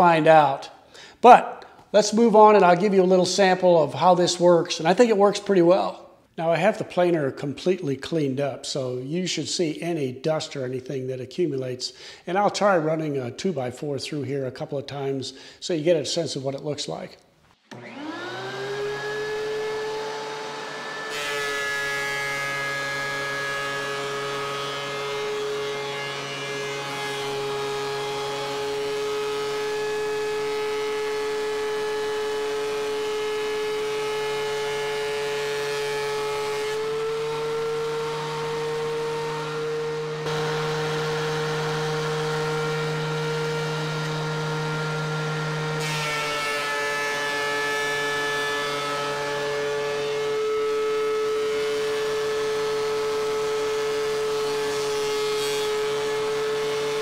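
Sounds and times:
thickness planer whining: 17.6 - 57.0.

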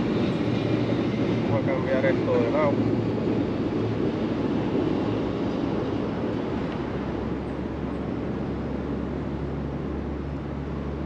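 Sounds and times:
highway traffic rumble: 0.0 - 11.0.

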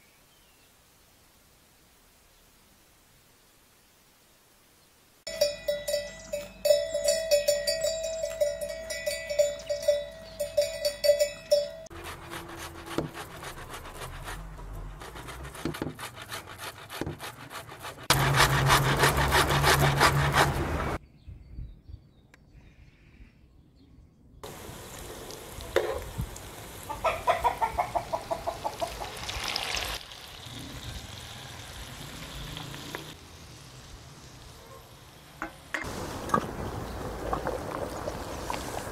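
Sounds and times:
cowbell clanking: 5.3 - 11.9.

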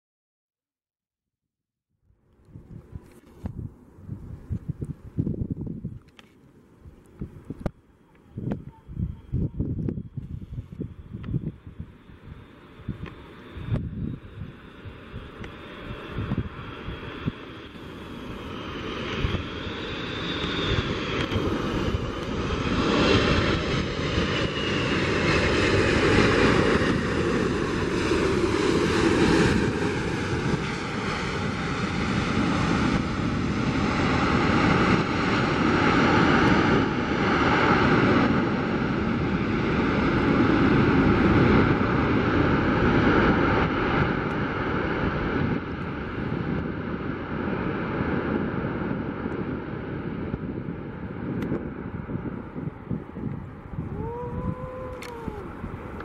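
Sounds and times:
jet engines roaring: 6.1 - 56.0
high whine sliding down: 53.3 - 56.0.

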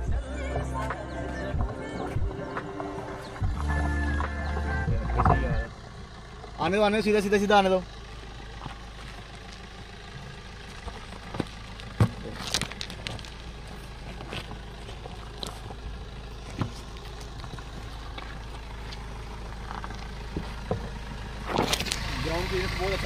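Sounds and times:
diesel car engine hum: 0.0 - 23.0
stones crunching under tyres: 7.4 - 23.0.

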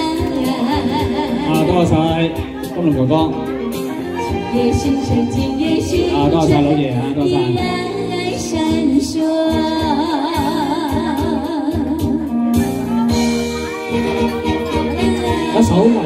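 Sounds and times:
woman singing a ballad: 0.0 - 1.7, 4.0 - 12.7, 13.9 - 16.0
recorded backing music: 0.0 - 16.0.

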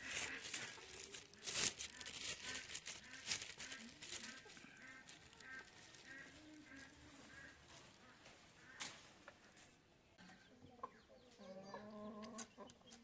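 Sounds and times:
sharp crinkling rustle: 0.0 - 9.8
chickens clucking softly: 10.2 - 13.0.

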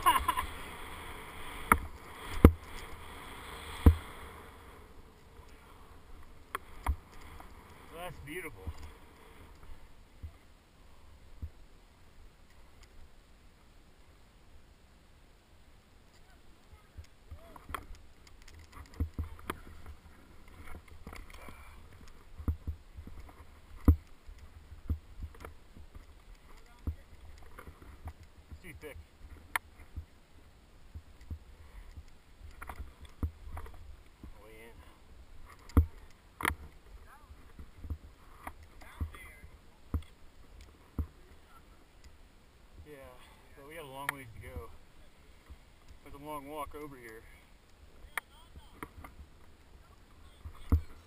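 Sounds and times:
skis swishing on snow: 0.0 - 10.4
ski poles planting: 0.0 - 10.5, 16.1 - 51.0.

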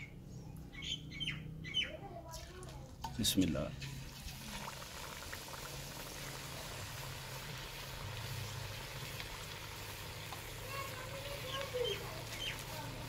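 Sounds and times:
food deep-frying in hot oil: 3.0 - 13.0.

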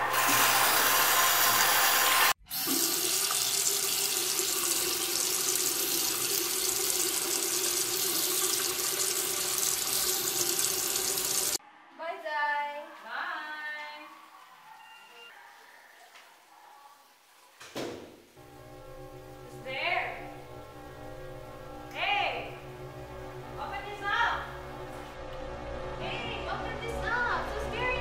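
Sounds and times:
tap water running into sink: 2.5 - 11.6.

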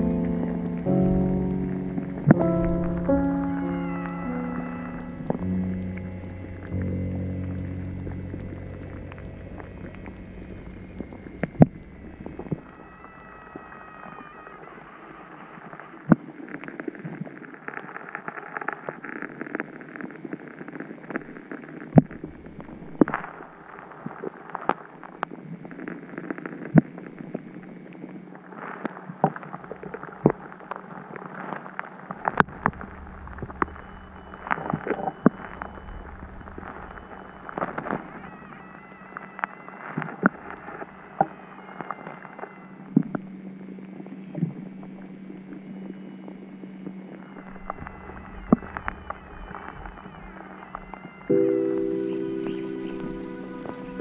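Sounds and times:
steady low hum: 0.0 - 15.0, 29.4 - 54.0
underwater crackling water wash: 0.0 - 54.0.

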